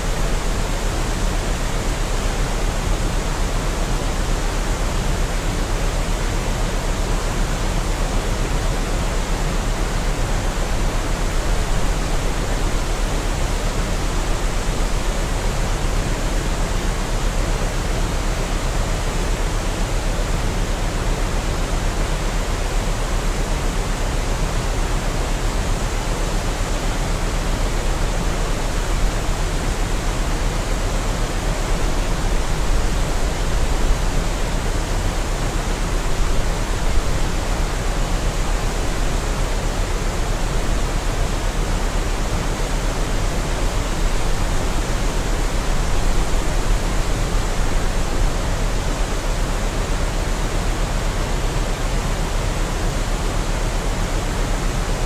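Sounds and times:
waterfall rushing: 0:24.4 - 0:55.0.

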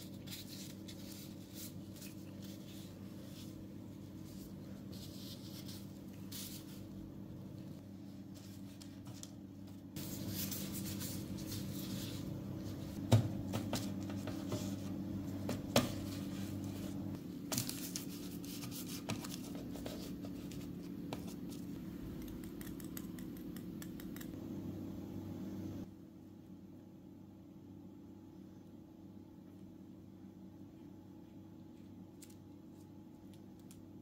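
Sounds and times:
baking paper and gloves rustling: 0:00.0 - 0:21.9
steady low hum: 0:00.0 - 0:34.0.

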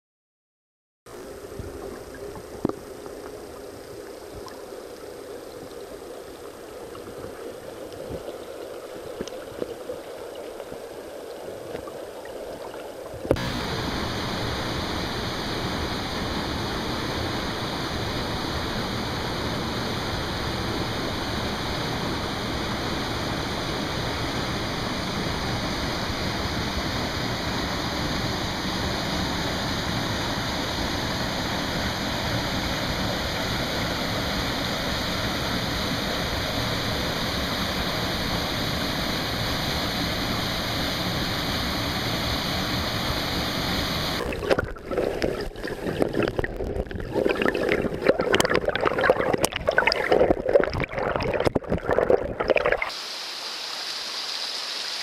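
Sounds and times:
stream rushing over rocks: 0:13.4 - 0:47.3, 0:47.9 - 0:55.0.

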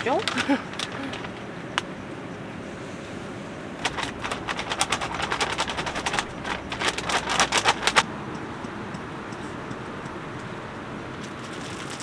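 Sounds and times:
plastic bag crinkling: 0:00.0 - 0:01.6, 0:03.8 - 0:08.0, 0:11.2 - 0:12.0.

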